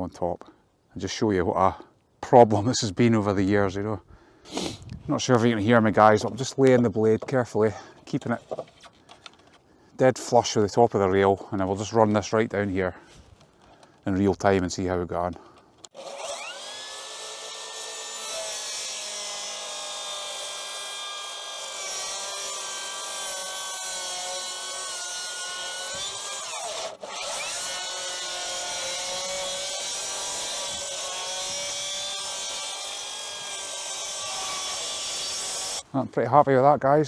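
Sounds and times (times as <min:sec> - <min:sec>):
circular saw cutting wood: 0:15.9 - 0:35.8.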